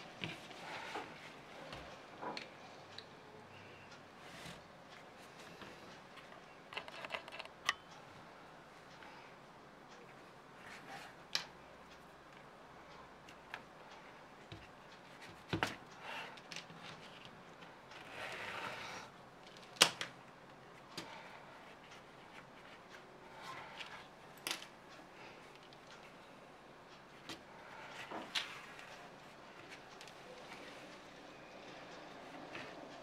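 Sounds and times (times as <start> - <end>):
tools clicking and knocking: 6.2 - 7.8.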